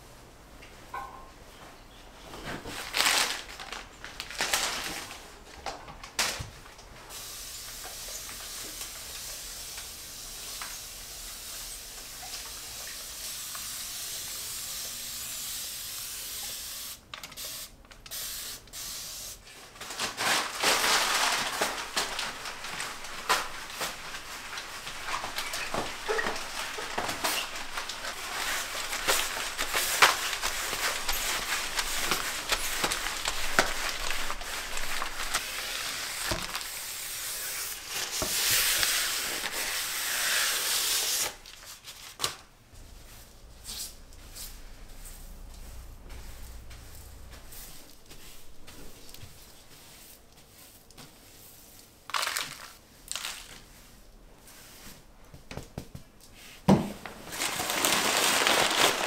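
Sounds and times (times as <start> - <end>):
spray bottle hissing: 7.1 - 19.4
newspaper rubbing on glass: 22.3 - 41.4.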